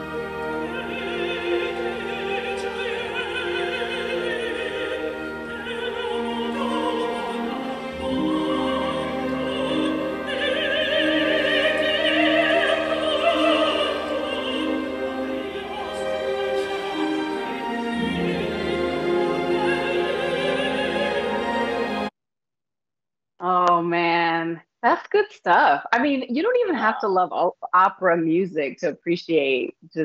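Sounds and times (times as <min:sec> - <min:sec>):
orchestra with strings: 0:00.0 - 0:22.1
soprano singing with vibrato: 0:00.0 - 0:22.1.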